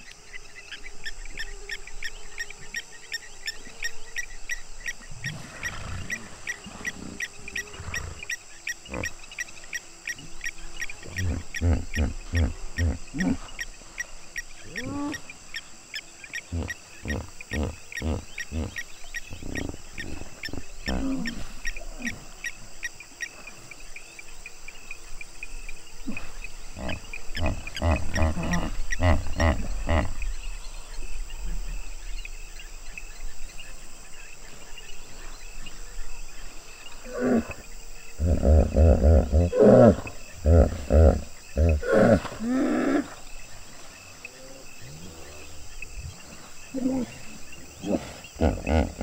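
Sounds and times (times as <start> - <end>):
hippos grunting honks: 11.0 - 13.5, 16.4 - 22.2, 26.0 - 30.3, 37.0 - 43.2, 46.7 - 49.0.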